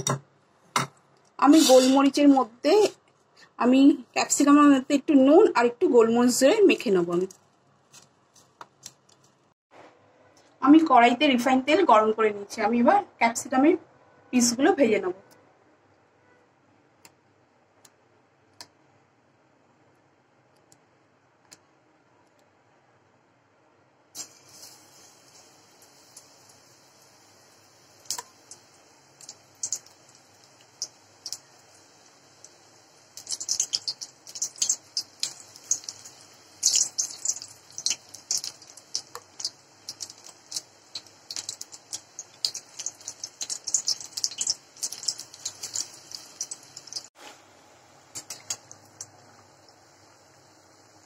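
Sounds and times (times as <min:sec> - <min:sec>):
batter crackling in hot oil: 0:24.2 - 0:47.4, 0:48.0 - 0:51.0.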